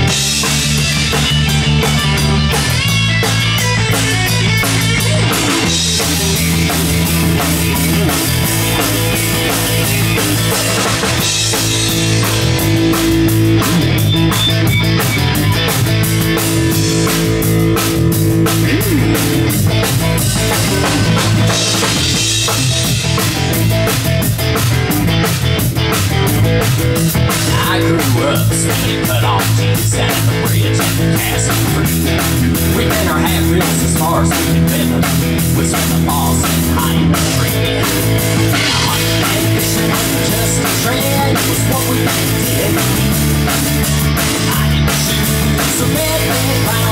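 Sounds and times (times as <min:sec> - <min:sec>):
electric guitar held notes: 0:00.0 - 0:27.4
rock band playing: 0:00.0 - 0:46.9.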